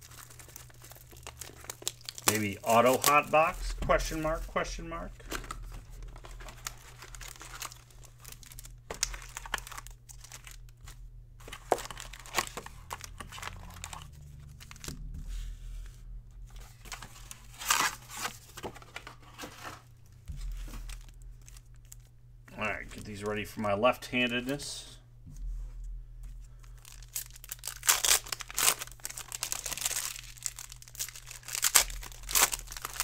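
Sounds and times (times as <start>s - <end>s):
foil packs rustling and clicking: 0.0s - 14.9s, 16.5s - 22.1s, 26.6s - 33.0s
plastic wrap crinkling and tearing: 0.0s - 15.0s, 16.6s - 19.5s, 20.5s - 22.1s, 26.6s - 33.0s.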